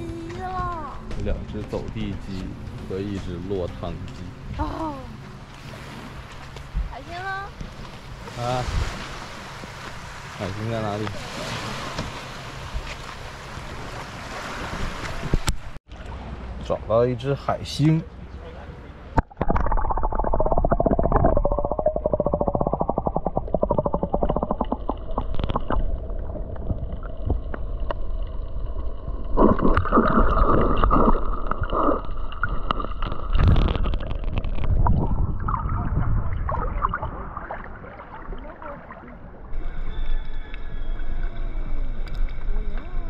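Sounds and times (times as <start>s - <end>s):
churning water surges: 4.6s - 16.6s, 29.0s - 40.1s
water splash: 19.2s - 39.6s
muffled underwater sloshing: 19.2s - 43.0s.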